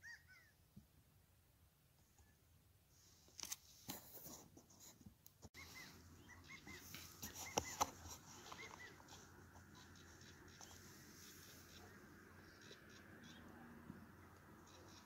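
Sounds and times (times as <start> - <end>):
small bird chirping: 5.6 - 15.0.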